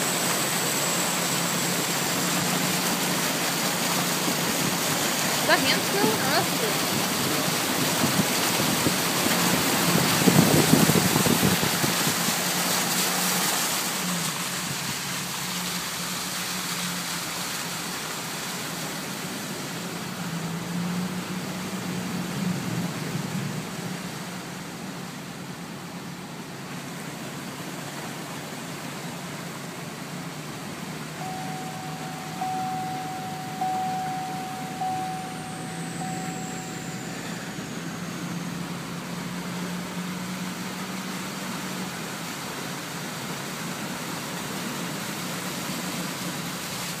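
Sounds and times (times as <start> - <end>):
car engine hum and road noise: 0.0 - 47.0
steady high tone: 31.2 - 39.4.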